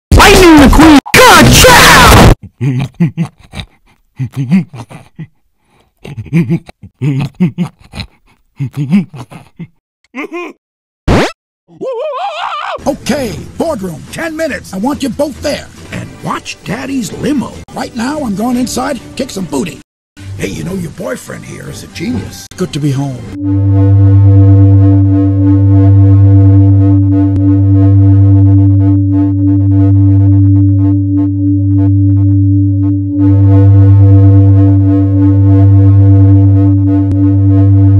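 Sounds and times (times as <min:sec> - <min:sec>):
low electronic buzzing drone: 0:23.3 - 0:37.9.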